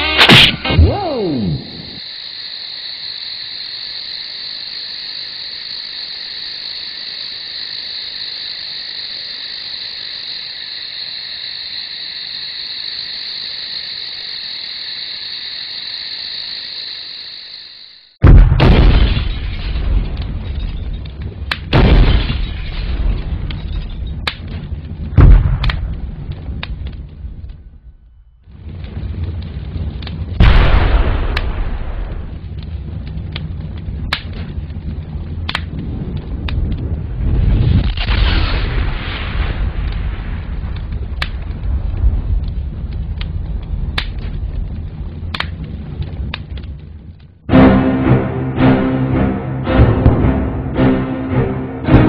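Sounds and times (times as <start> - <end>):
high insect chirring: 0.0 - 18.2
explosion booms and crashes: 18.2 - 52.0.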